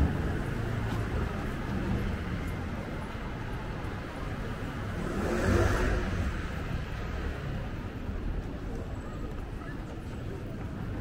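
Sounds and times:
city street traffic: 0.0 - 11.0
vehicle passing close by: 4.9 - 6.5.

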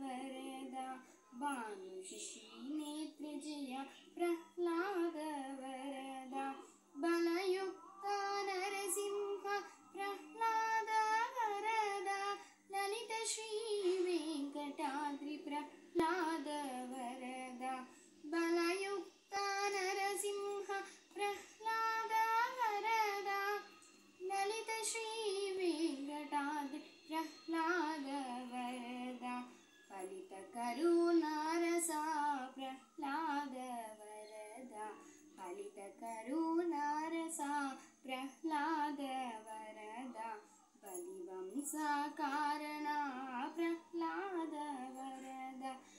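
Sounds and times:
girl singing: 0.0 - 45.9.

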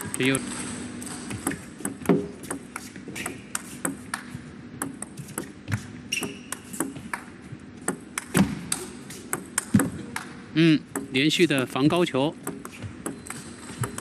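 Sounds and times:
table tennis ball clicking: 1.4 - 5.6, 6.2 - 11.2, 12.3 - 14.0.

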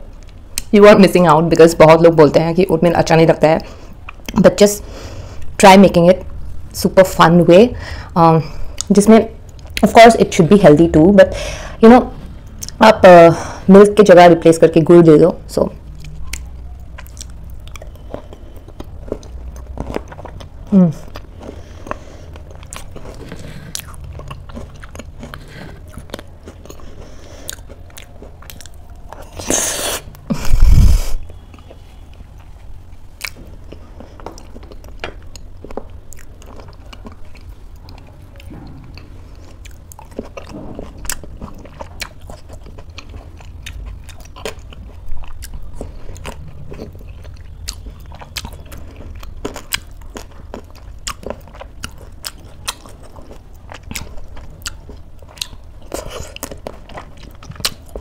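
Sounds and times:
close chewing and crunching: 15.7 - 58.0.

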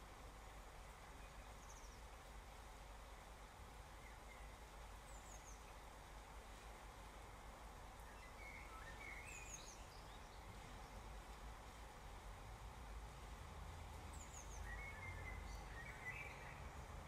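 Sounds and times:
rain on a wet street: 0.0 - 17.0
bird chirping: 14.1 - 16.8.

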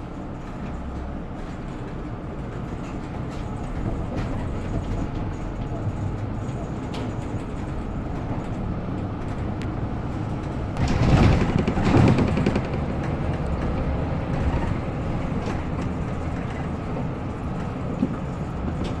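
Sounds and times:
bus engine and road rumble: 0.0 - 19.0
loud rattling rumble: 0.0 - 19.0.

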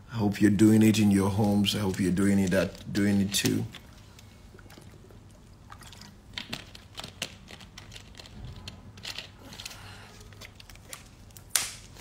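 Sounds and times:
handling noise clicks and crinkles: 0.6 - 12.0.

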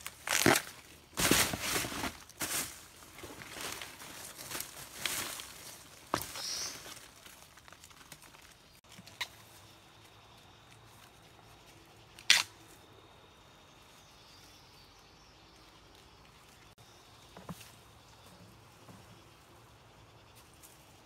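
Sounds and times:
dry stems snapping: 0.0 - 1.3, 12.2 - 12.5
dry leaves rustling and crackling: 0.0 - 9.5.

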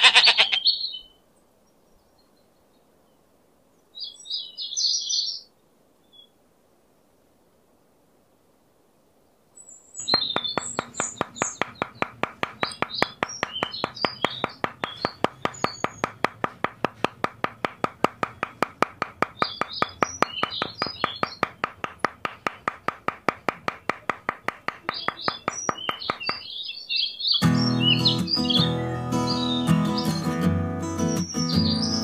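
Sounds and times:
birds chirping: 9.6 - 32.0.

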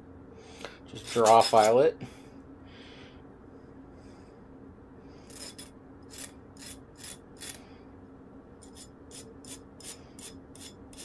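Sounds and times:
hand file rasping strokes: 5.3 - 7.6, 8.6 - 11.0.

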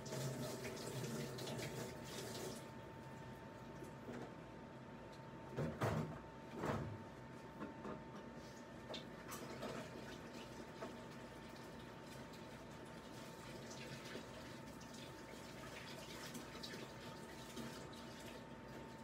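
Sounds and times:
water running: 0.0 - 2.8, 9.4 - 19.0.

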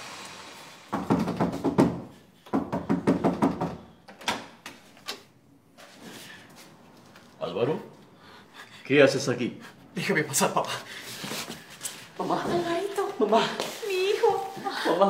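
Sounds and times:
knocking on a door: 0.9 - 3.9.

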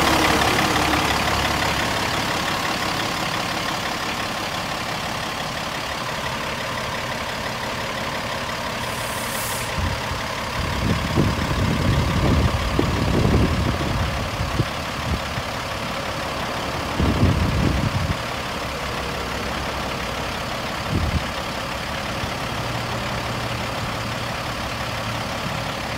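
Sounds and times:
truck diesel engine idling: 0.0 - 25.9
brief high hiss: 8.8 - 9.8
wind rumbling on microphone: 9.7 - 15.4.

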